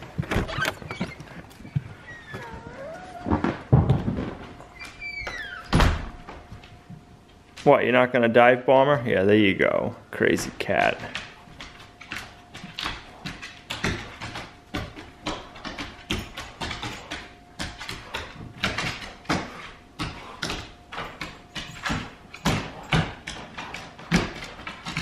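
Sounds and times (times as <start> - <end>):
paws and claws on wooden floor: 0.0 - 5.5, 11.0 - 25.0.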